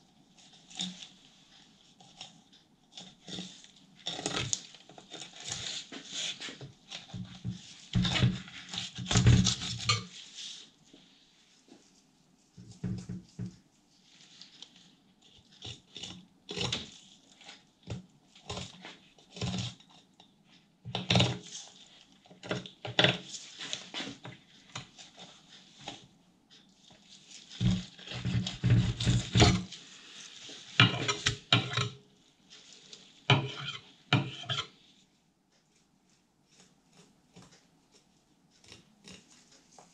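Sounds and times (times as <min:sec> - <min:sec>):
knife scraping on cutting board: 0:02.9 - 0:10.6, 0:27.3 - 0:32.0, 0:32.6 - 0:34.8.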